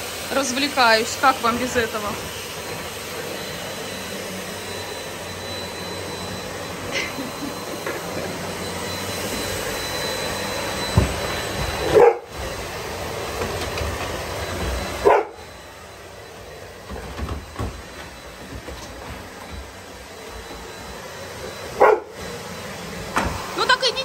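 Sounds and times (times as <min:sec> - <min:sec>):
vacuum cleaner running: 0:00.0 - 0:24.0
dog barking: 0:11.9 - 0:12.3, 0:15.0 - 0:15.4, 0:21.8 - 0:22.2.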